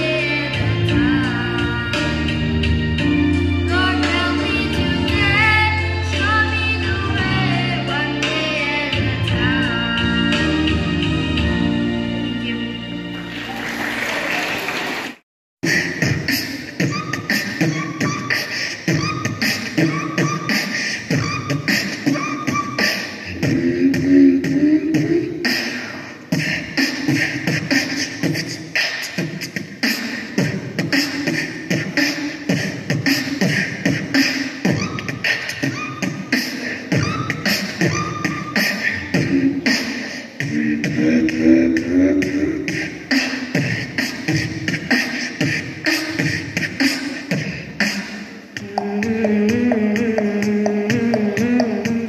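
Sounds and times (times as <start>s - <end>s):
person beatboxing into microphone: 0.0s - 2.8s, 15.6s - 52.0s.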